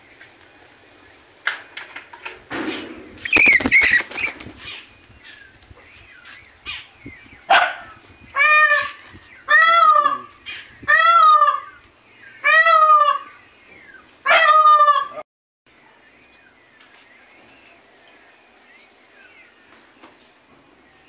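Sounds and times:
peafowl calling: 0.6 - 15.2.

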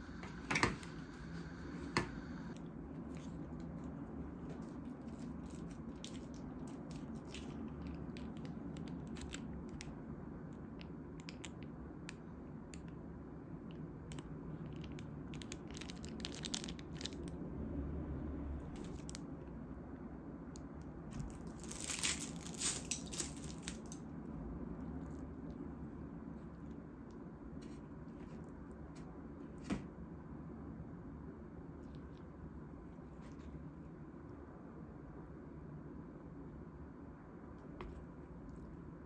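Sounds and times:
crunching of fried chicken: 13.8 - 17.5, 21.0 - 25.8.

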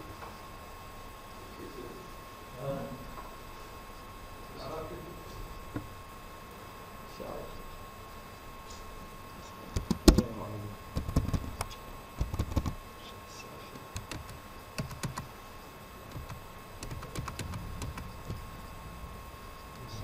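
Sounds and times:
faint steady whine: 0.0 - 20.0
keyboard and mouse clicks: 9.8 - 10.2, 11.0 - 12.8, 14.0 - 15.3, 16.1 - 18.4.

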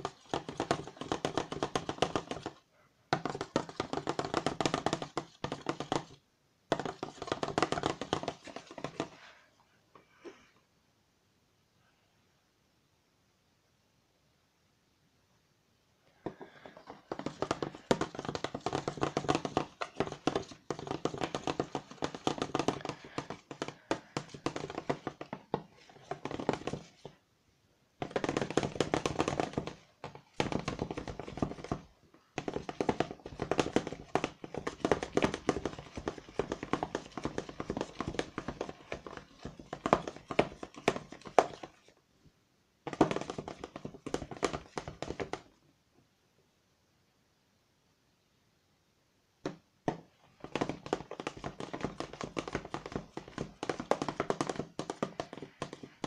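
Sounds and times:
spoon scraping plastic bowl: 28.1 - 41.9.

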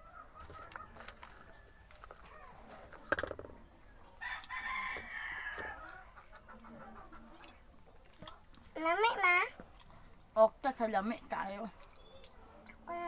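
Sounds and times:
rooster crowing: 4.2 - 6.0.

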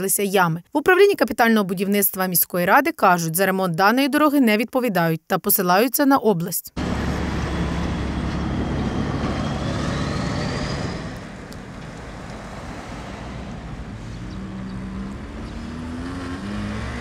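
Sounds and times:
engine rising in pitch: 6.8 - 17.0
vehicle engine running: 6.8 - 17.0.

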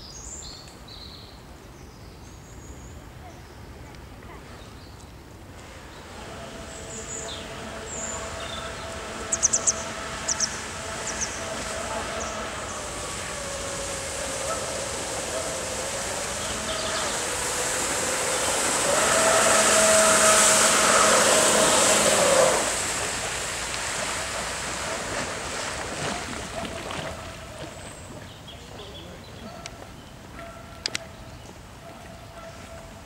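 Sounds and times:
jet drive motor whine: 5.5 - 25.9
hiss of spray: 5.6 - 26.0.

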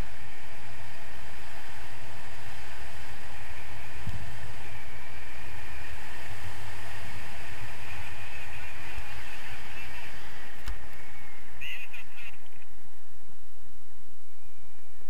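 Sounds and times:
wind buffeting microphone: 0.0 - 15.0
high squawk-like sounds: 7.4 - 12.8.

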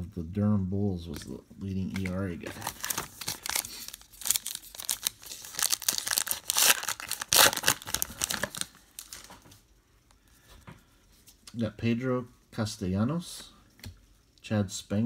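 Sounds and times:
card pack wrapper crinkling and tearing: 1.8 - 9.4.

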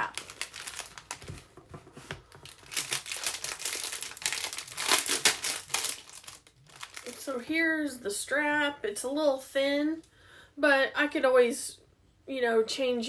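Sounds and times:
packaging crinkling: 0.0 - 7.3.

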